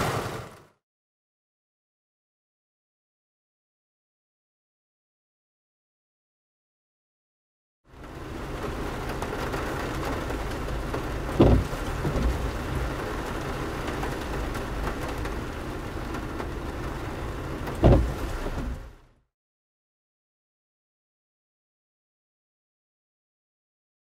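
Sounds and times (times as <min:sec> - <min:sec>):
steady rain falling: 0:00.0 - 0:00.7, 0:07.9 - 0:19.1
low thumps: 0:11.2 - 0:13.0, 0:17.6 - 0:18.9.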